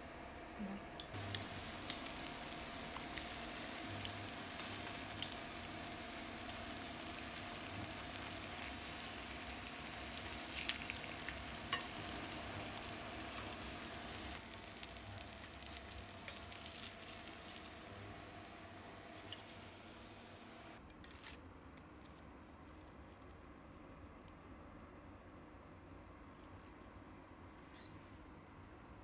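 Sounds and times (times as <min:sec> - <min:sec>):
patties sizzling in hot oil: 0:01.1 - 0:20.8.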